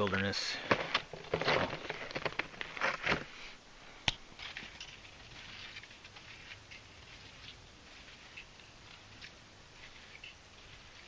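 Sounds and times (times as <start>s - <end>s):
footsteps crunching in snow: 4.4s - 11.0s.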